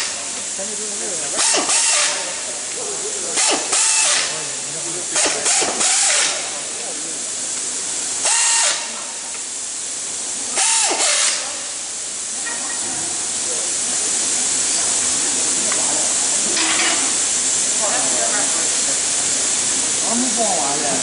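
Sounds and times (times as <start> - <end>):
pneumatic impact wrench whine: 0.0 - 0.4, 1.3 - 2.5, 3.2 - 4.5, 5.1 - 6.6, 8.2 - 9.1, 10.5 - 11.8, 16.4 - 17.5
air hiss: 0.0 - 21.0.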